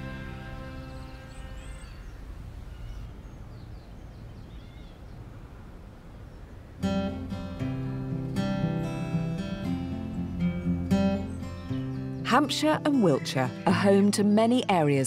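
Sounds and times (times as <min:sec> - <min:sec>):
acoustic guitar strumming: 0:00.0 - 0:01.9, 0:06.8 - 0:15.0.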